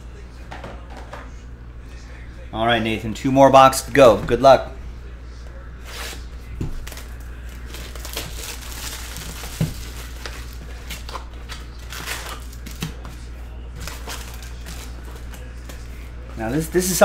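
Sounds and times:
plastic wrap crinkling and tearing: 0:06.8 - 0:13.0, 0:13.8 - 0:15.5
foil packs handled: 0:06.8 - 0:13.2, 0:13.8 - 0:17.0.

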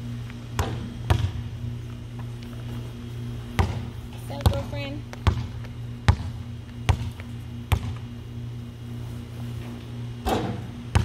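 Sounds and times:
basketball bouncing: 0:00.5 - 0:01.6, 0:03.4 - 0:08.1, 0:10.2 - 0:11.0.

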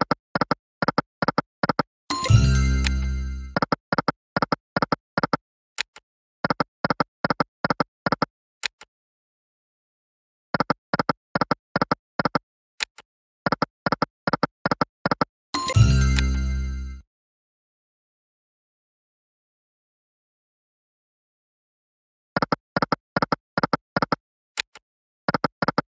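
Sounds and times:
chiming tune: 0:02.1 - 0:03.6, 0:15.6 - 0:17.0.

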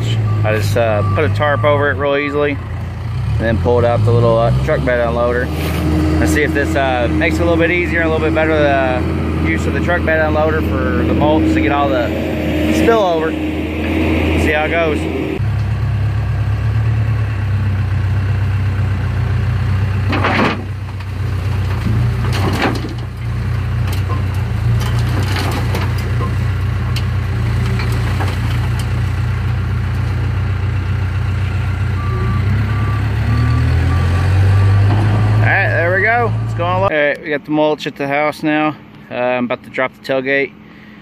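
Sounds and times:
reversing beeper: 0:00.0 - 0:02.6, 0:03.6 - 0:15.5, 0:31.9 - 0:35.6
diesel engine running: 0:00.0 - 0:36.9.

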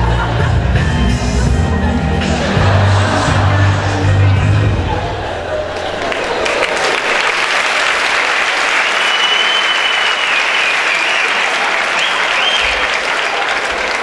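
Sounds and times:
audience applauding: 0:05.5 - 0:14.0.

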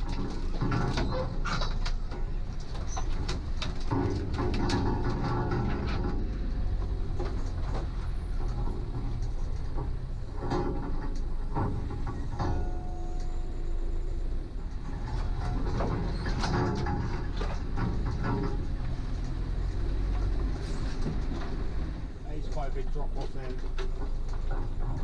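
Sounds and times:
low engine rumble: 0:00.0 - 0:25.0
vehicle body knocks and rattles: 0:00.0 - 0:25.0
branches scraping vehicle side: 0:14.8 - 0:24.9.

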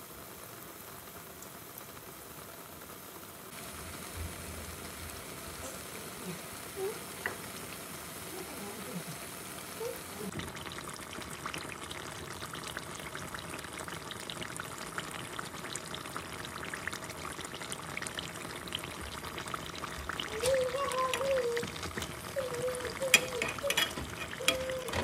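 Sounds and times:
dough deep-frying in oil: 0:00.0 - 0:25.0.

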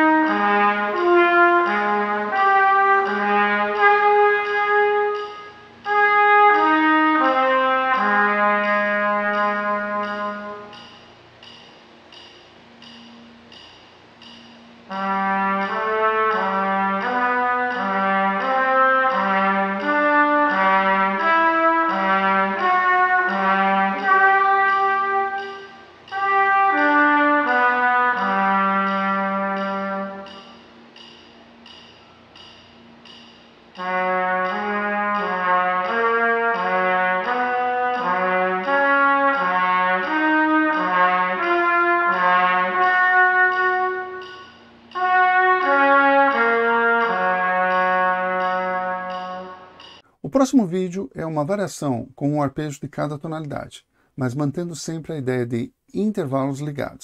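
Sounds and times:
trumpet playing: 0:00.0 - 0:11.0, 0:14.9 - 0:30.8, 0:33.7 - 0:51.6
short breath: 0:53.8 - 0:54.2.

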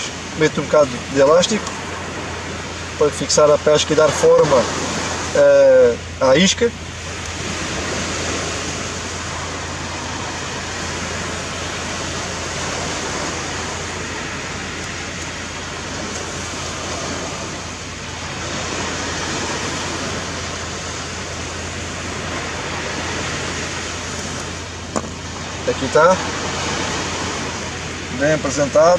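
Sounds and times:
sea surf breaking on beach: 0:00.0 - 0:28.9.

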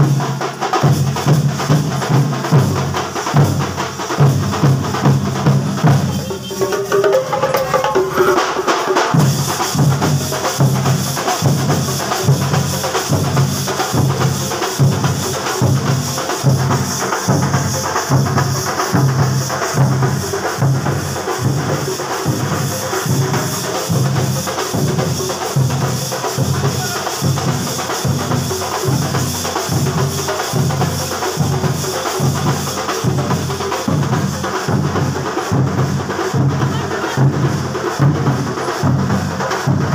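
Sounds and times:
deep drums beating: 0:00.0 - 0:39.9.

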